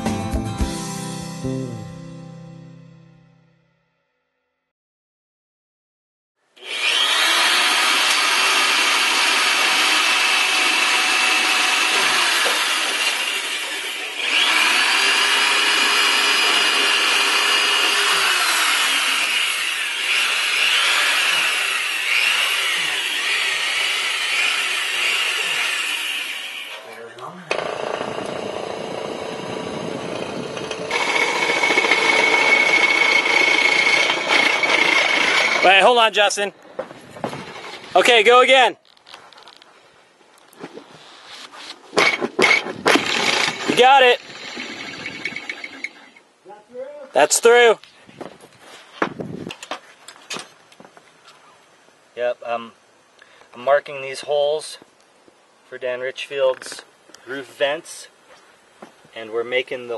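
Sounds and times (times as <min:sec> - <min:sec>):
electric drill boring wood: 0:06.6 - 0:26.9, 0:27.5 - 0:35.8, 0:42.0 - 0:46.2.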